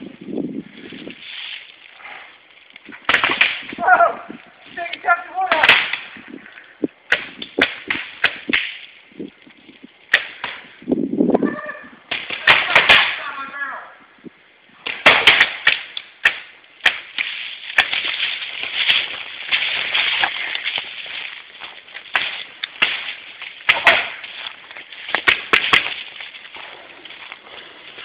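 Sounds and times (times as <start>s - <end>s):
footsteps through dry leaves: 0.8s - 2.7s, 17.1s - 28.0s.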